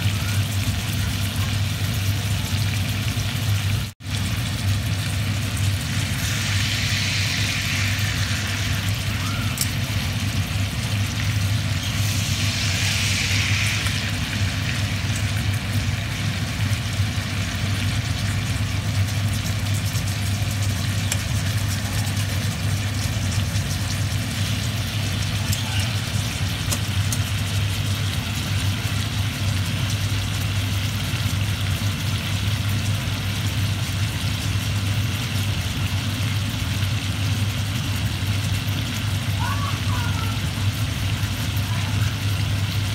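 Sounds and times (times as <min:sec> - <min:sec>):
steady low hum: 0:00.0 - 0:31.4
steaks sizzling in a skillet: 0:04.1 - 0:37.3.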